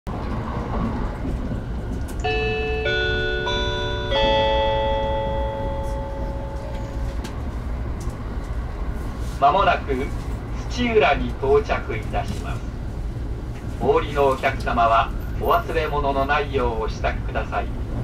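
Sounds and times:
train low rumble: 0.1s - 18.0s
four-note announcement chime: 2.2s - 7.1s.

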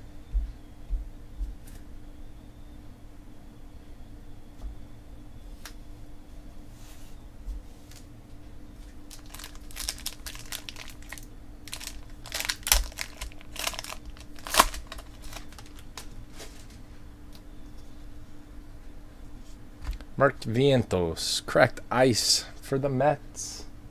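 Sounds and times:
foil wrapper tearing and crinkling: 9.1s - 16.1s.

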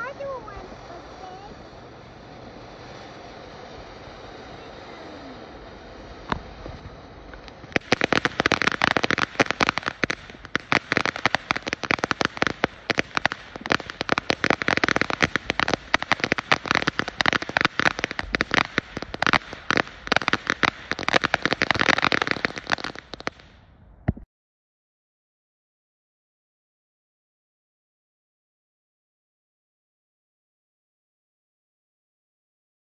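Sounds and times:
firework crackling: 0.0s - 23.6s.

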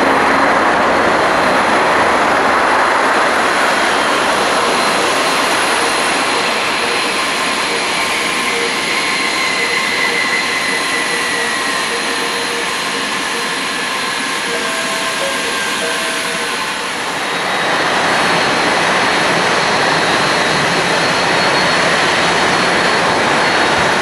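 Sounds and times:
jet engines in reverse thrust: 0.0s - 24.0s.

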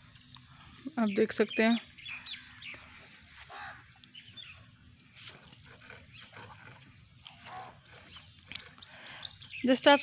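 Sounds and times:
short animal calls: 3.4s - 4.0s.

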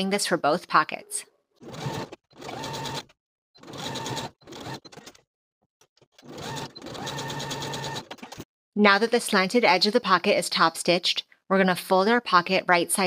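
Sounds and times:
sewing machine stitching: 1.6s - 8.5s.

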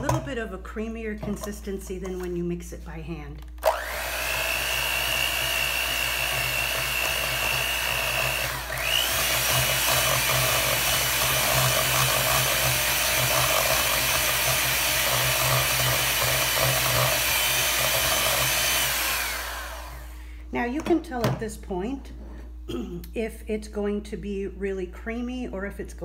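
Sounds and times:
electric hand mixer whining: 3.6s - 20.3s.

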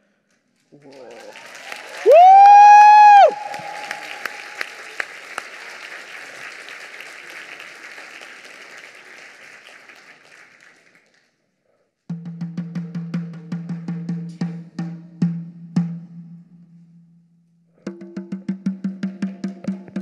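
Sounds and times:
audience applause: 0.7s - 11.3s.

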